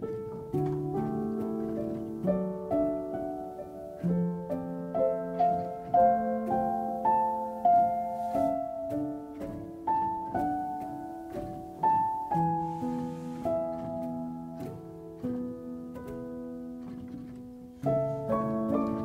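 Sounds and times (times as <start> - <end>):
piano melody: 0.0 - 19.0.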